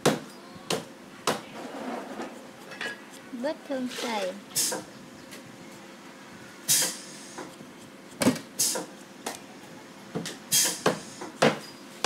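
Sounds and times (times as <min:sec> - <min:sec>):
knife scraping coconut meat: 0:01.6 - 0:04.8, 0:06.8 - 0:09.7.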